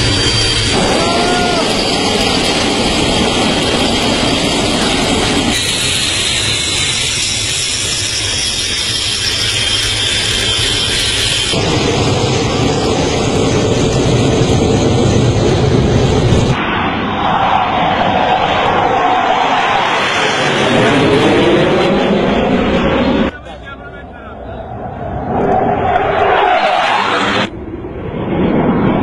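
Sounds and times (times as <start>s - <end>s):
thin high whine: 0.0s - 13.9s
jet engine running: 0.0s - 29.0s.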